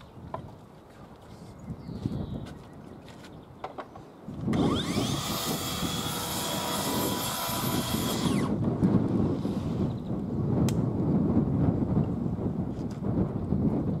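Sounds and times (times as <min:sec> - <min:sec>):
track saw whining: 0:04.5 - 0:08.6.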